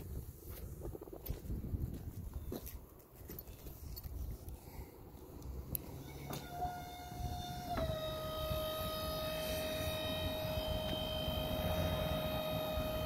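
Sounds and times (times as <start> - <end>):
electric door motor whining: 5.8 - 13.0.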